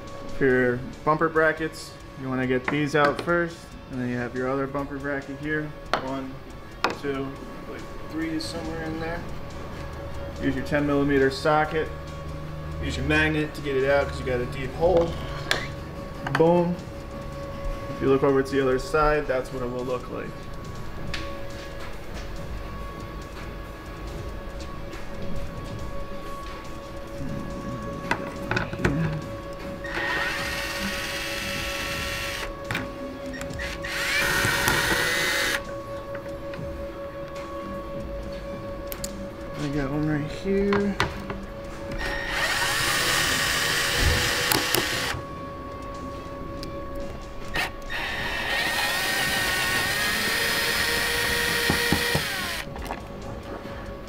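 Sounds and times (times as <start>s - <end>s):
cordless screwdriver motor whining: 29.8s - 32.5s, 33.4s - 35.6s, 42.0s - 45.2s, 47.5s - 52.7s.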